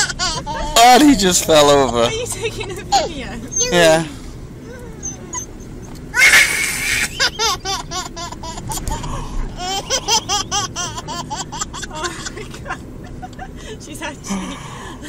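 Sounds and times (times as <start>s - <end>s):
toddler laughing: 0.0s - 2.0s, 6.1s - 13.6s
high-pitched giggles: 6.2s - 13.6s.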